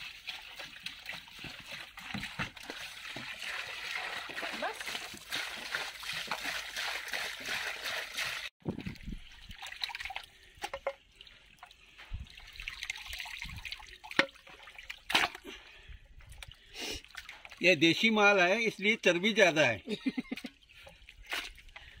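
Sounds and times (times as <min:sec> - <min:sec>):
water pouring into a tub: 0:00.0 - 0:15.2
hands sloshing water: 0:00.0 - 0:15.6
water dripping: 0:00.0 - 0:17.8.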